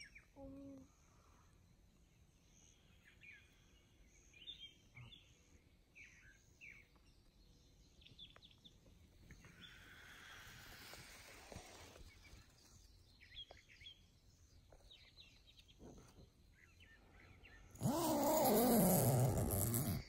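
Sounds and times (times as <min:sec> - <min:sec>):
birds chirping: 0:02.4 - 0:20.0
soft rustling hiss: 0:08.9 - 0:13.8.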